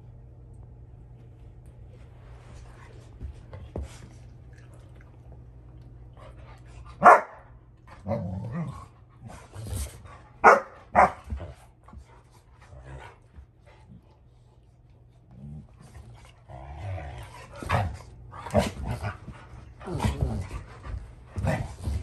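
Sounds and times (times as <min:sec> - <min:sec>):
dog barking: 0:07.0 - 0:07.4, 0:10.4 - 0:11.2
dog growling: 0:08.0 - 0:10.0, 0:15.3 - 0:19.2, 0:19.8 - 0:20.8.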